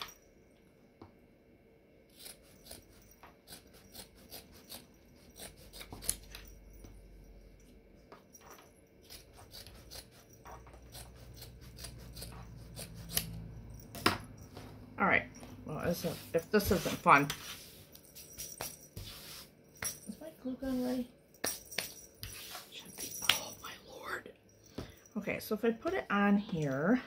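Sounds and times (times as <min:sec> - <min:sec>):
scissors snipping: 0:02.2 - 0:06.4, 0:09.0 - 0:14.0.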